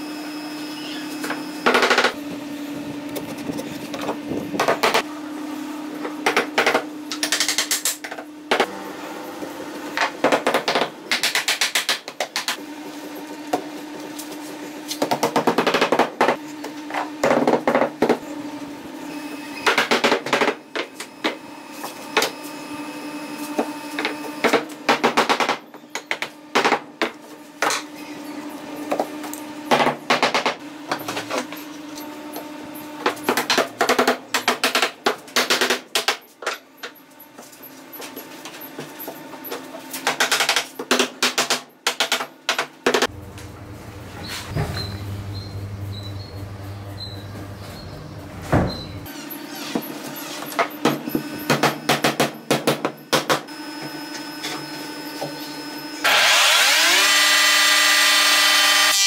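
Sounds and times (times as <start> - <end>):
steady hum: 43.1 - 49.1.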